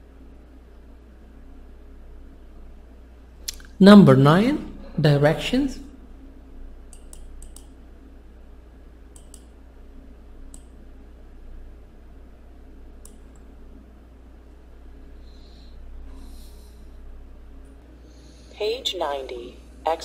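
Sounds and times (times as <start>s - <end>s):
faint low hum: 0.0s - 20.0s
computer mouse clicking: 6.9s - 7.8s, 9.1s - 9.6s, 10.4s - 10.8s, 13.0s - 13.5s.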